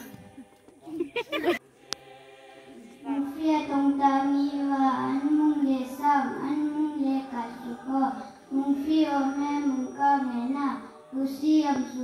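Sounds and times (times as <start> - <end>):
girl singing unaccompanied: 3.0 - 12.0.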